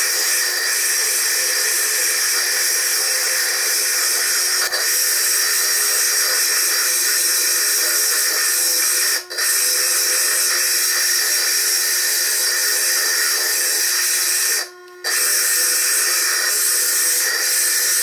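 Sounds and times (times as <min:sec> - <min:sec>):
lathe drill grinding stone: 0:00.0 - 0:18.0.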